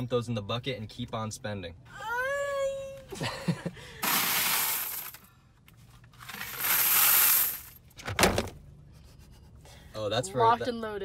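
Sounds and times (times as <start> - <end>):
coins poured into a bucket: 4.0 - 5.3, 6.2 - 7.8.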